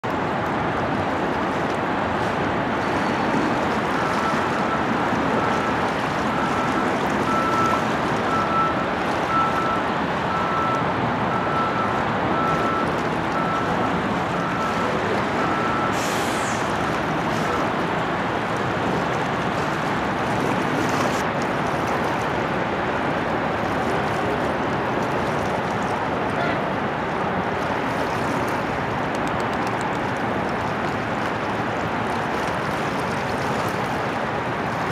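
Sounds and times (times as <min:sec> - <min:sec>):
road traffic rushing: 0:00.0 - 0:34.9
reversing beeper beeps: 0:06.3 - 0:16.1.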